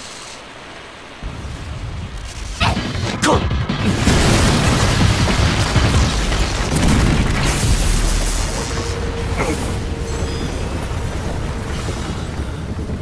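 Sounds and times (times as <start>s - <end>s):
debris crashing: 1.2s - 13.0s
rumbling boom: 1.2s - 13.0s.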